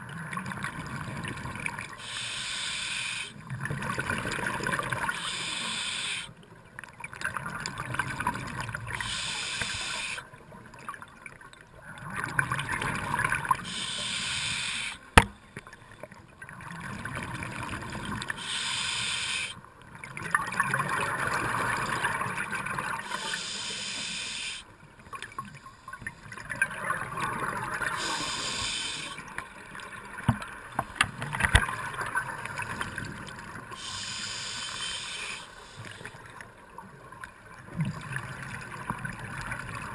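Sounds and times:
diver inhaling through regulator: 2.0 - 3.4, 5.1 - 6.4, 9.0 - 10.2, 13.6 - 15.2, 18.4 - 19.6, 23.0 - 24.7, 27.9 - 29.3, 33.8 - 36.2.

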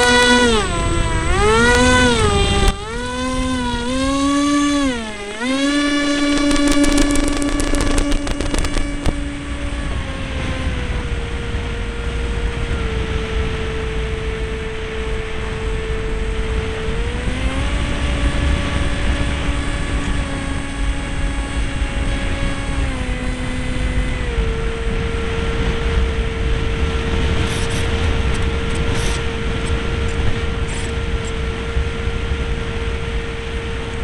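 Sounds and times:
model seaplane motor whine: 0.0 - 34.0
wind rumbling on microphone: 0.0 - 34.0
sharp clicks: 6.2 - 9.2.

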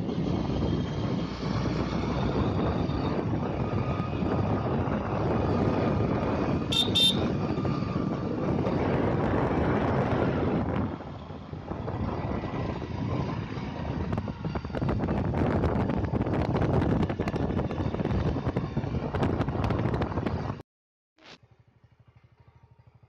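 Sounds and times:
wind rushing over microphone: 0.0 - 20.6
motorcycle engine running: 1.8 - 20.6, 21.4 - 23.0
short horn toots: 6.7 - 7.4.

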